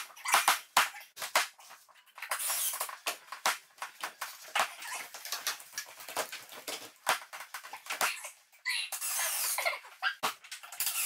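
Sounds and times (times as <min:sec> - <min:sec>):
clicks and knocks of hand work: 0:00.0 - 0:08.3.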